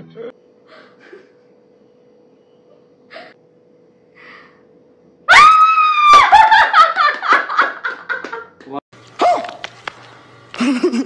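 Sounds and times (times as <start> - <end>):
woman screaming with joy: 5.3 - 6.7.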